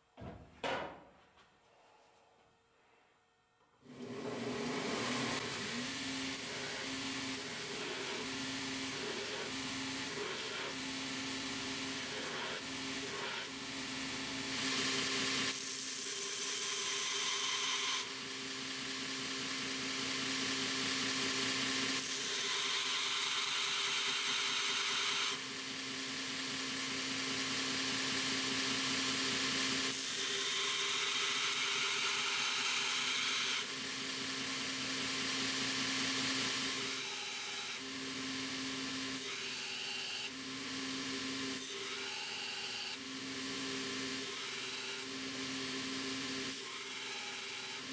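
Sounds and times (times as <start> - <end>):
belt grinder motor hum: 3.8 - 47.9
steel grinding on belt: 4.3 - 10.9.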